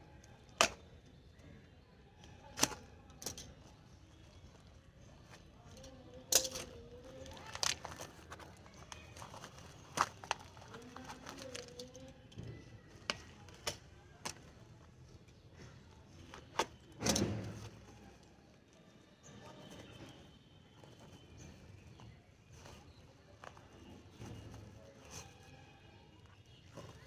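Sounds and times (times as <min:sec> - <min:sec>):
packaging clicks and crinkles: 0:00.0 - 0:27.0
packaging rustle: 0:02.7 - 0:14.8.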